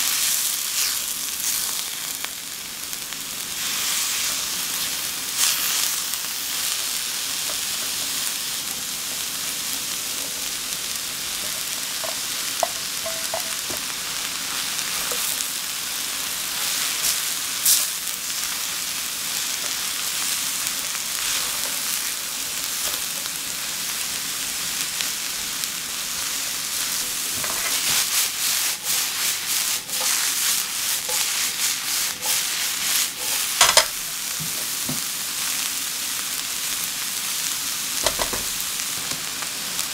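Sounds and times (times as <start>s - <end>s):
vegetables sizzling in frying pan: 0.0s - 39.9s
spatula scraping pan: 26.8s - 34.8s.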